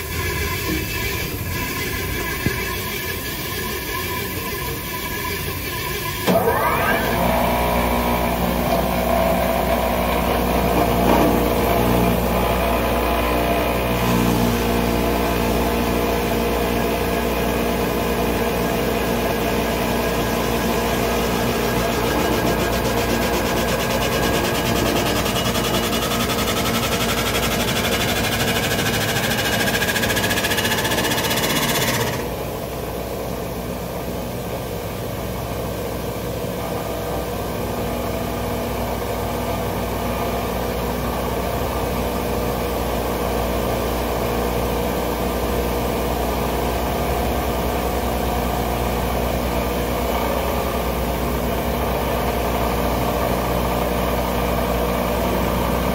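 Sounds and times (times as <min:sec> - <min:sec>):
spinning wheel mechanical hum: 0:00.0 - 0:33.8
electric motor whir: 0:20.8 - 0:32.3.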